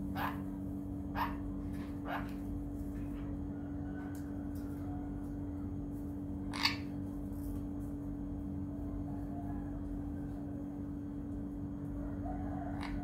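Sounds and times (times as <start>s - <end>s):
parrot squawking: 0.0s - 0.5s, 1.1s - 2.4s, 6.5s - 6.9s.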